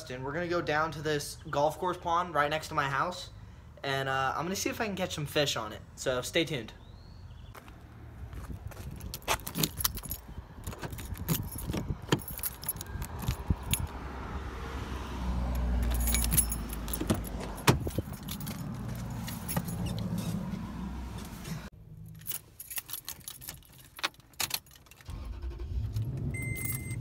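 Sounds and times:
car keys jangling: 8.9 - 14.0, 15.5 - 20.4, 22.0 - 27.0
key in car door lock: 9.0 - 14.0, 15.6 - 20.1, 22.1 - 25.1, 25.9 - 27.0.

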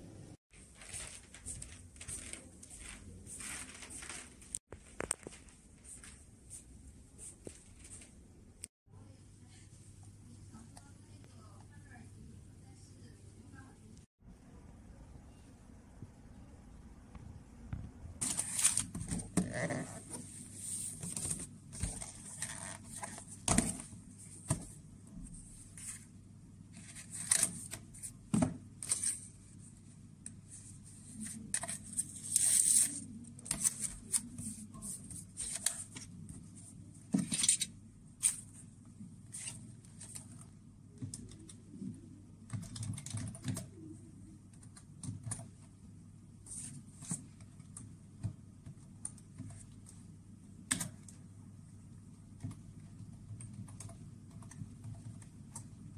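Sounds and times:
paper rustling and crinkling: 0.5 - 6.6, 18.2 - 24.8.

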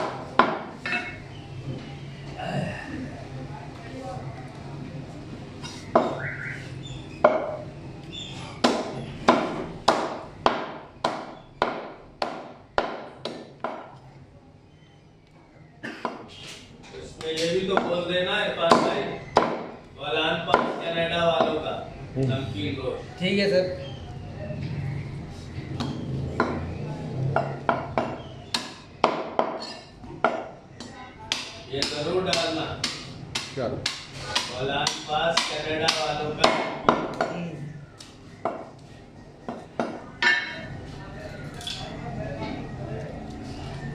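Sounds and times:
cleaver chopping on wooden block: 8.6 - 13.9.

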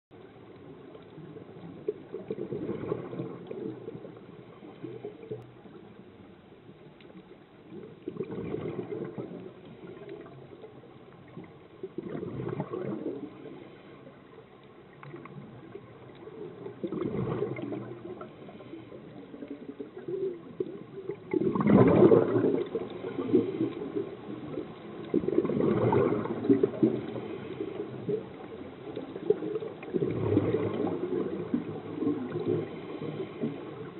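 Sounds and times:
low underwater hiss: 0.1 - 33.9
regulator bubbles gurgling underwater: 0.1 - 33.9.

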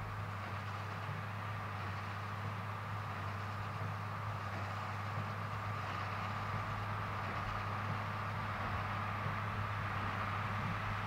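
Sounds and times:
distant tractor diesel engine: 0.0 - 11.0.

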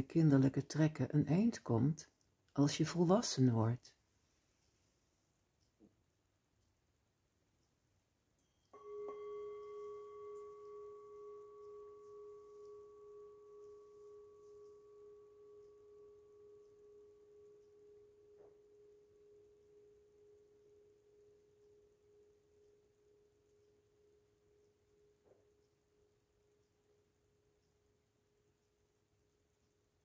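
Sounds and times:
singing bowl ringing: 8.4 - 27.0.

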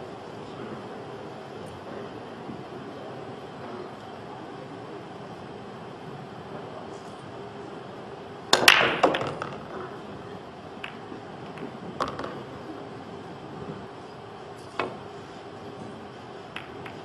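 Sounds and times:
cue tip striking ball: 8.5 - 10.0, 10.8 - 12.8, 16.5 - 17.0
billiard balls clacking: 8.5 - 10.1, 10.8 - 12.7, 16.5 - 17.0.

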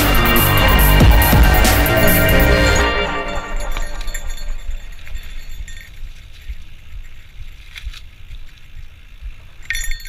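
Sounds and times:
bicycle tyre and drivetrain noise: 3.5 - 10.0.

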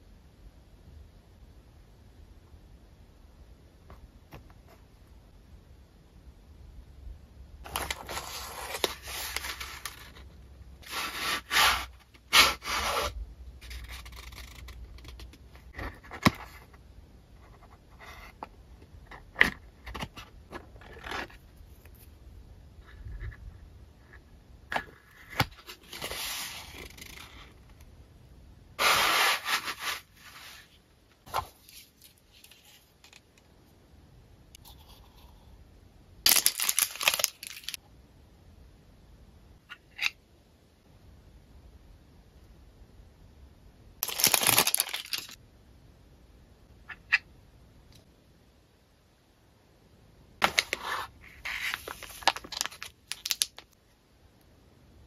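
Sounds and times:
cardboard and paper rustling: 7.6 - 16.8, 24.8 - 27.5, 36.3 - 37.8, 44.0 - 45.4, 50.4 - 53.6.

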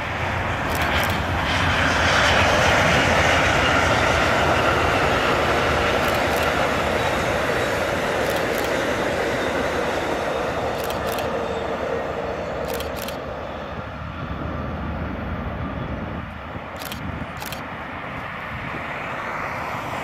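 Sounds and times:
train cars running on rails: 0.0 - 14.2.

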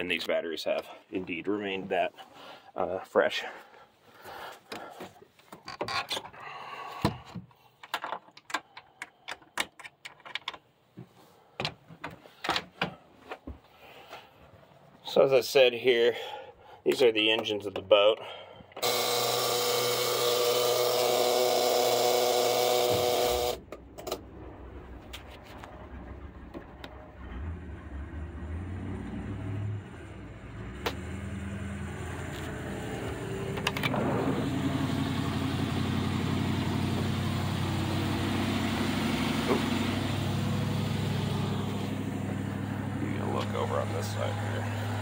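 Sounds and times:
loud steady whir: 18.8 - 25.0, 30.3 - 45.0
quiet rumbling: 23.6 - 35.0
boat engine humming: 30.2 - 45.0.

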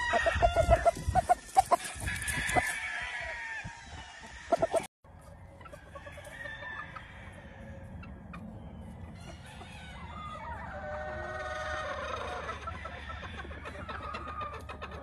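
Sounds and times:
rooster crowing: 0.0 - 1.0, 1.7 - 4.9, 5.9 - 7.9
chickens clucking: 0.0 - 2.8, 3.8 - 15.0.

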